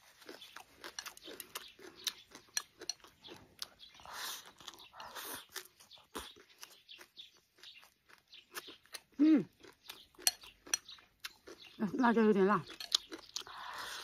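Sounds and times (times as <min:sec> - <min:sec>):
wet chewing with crunches: 0:00.0 - 0:14.0
slurping food: 0:03.8 - 0:06.3.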